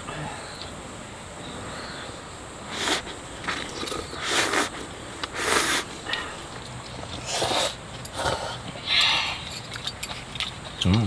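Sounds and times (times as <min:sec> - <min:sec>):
people slurping noodles: 0:02.7 - 0:06.5, 0:07.1 - 0:09.5.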